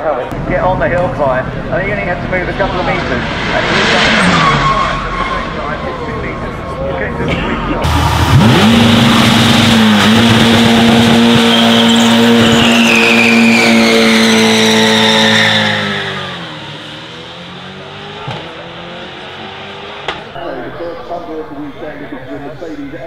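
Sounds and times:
car engine revving high: 1.5s - 7.1s, 7.8s - 20.9s
tyres screeching: 3.8s - 6.8s, 7.8s - 19.0s.

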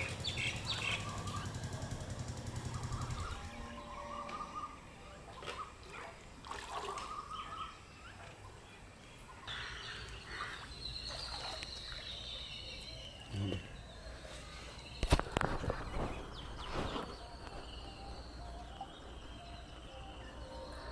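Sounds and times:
light water sounds: 5.3s - 8.6s, 10.0s - 12.4s.

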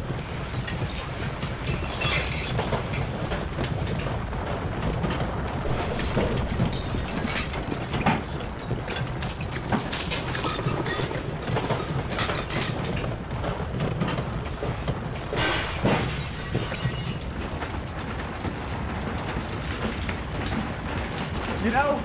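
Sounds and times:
rattling crashing knocks: 0.0s - 17.2s.

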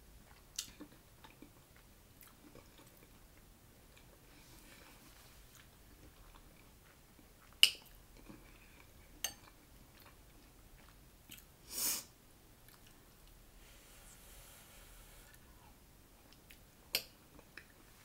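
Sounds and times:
quiet chewing: 0.2s - 11.5s, 12.6s - 13.4s.

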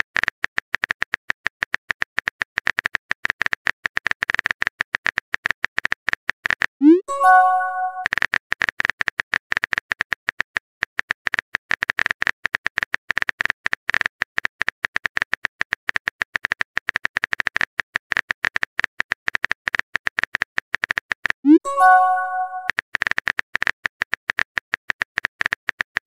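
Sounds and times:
keyboard typing clicks: 6.8s - 8.1s, 21.5s - 22.7s.

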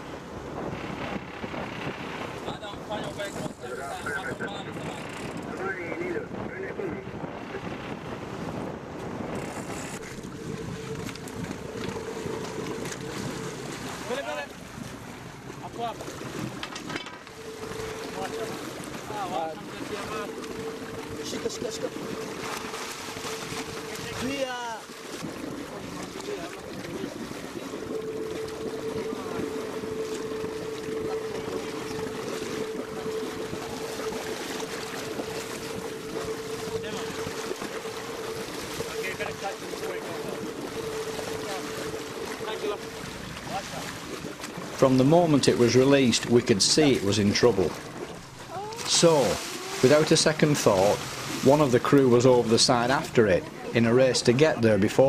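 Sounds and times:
wind on microphone: 0.0s - 15.3s
wind buffeting microphone: 0.0s - 44.8s
boat engine running: 0.0s - 55.0s
water splashing along hull: 0.0s - 55.0s
steady tone: 17.2s - 25.3s, 27.0s - 43.6s.

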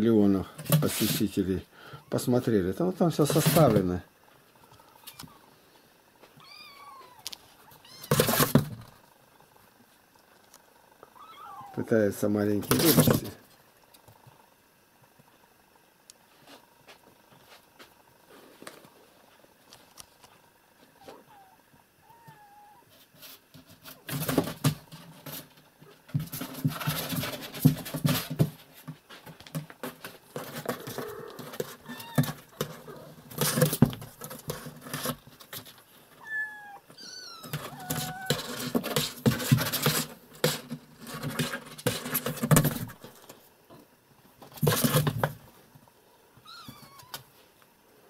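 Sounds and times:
cat scratching cardboard box: 7.9s - 8.8s, 22.9s - 35.9s, 37.3s - 43.2s, 44.5s - 45.4s
kitten mewing: 11.2s - 11.9s, 36.2s - 38.5s, 46.4s - 47.2s.

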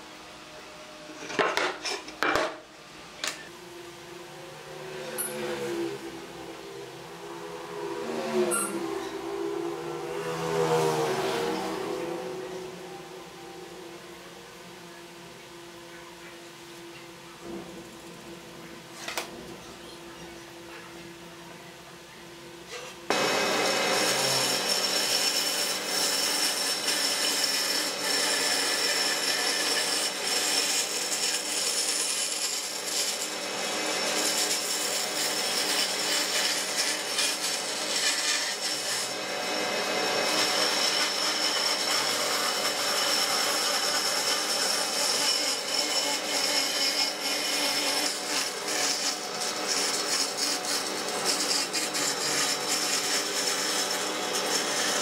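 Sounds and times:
band saw whine: 2.9s - 55.0s
blade rasping through wood: 22.7s - 55.0s.

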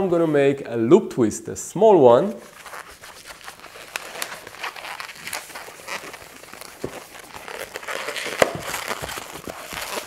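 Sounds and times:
balloon rubbing and crinkling: 2.3s - 10.0s
scratchy balloon squeaks: 2.4s - 10.0s.

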